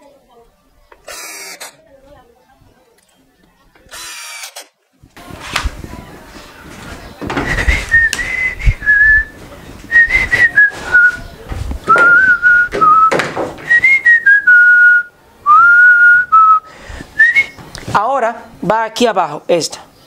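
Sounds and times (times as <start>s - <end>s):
man whistling a tune: 7.5s - 9.3s, 9.9s - 11.2s, 11.9s - 17.6s.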